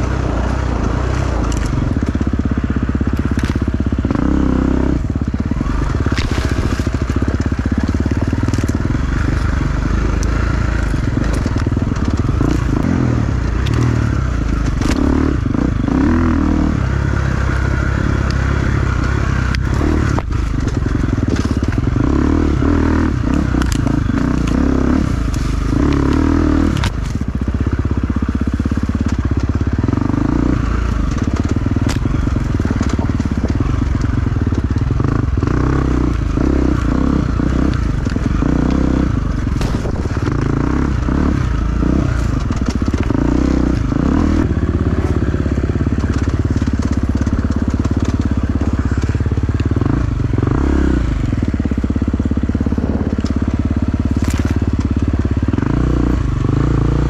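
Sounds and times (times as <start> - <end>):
dirt bike engine running: 0.0 - 57.0
sharp clicks and knocks: 29.0 - 50.6.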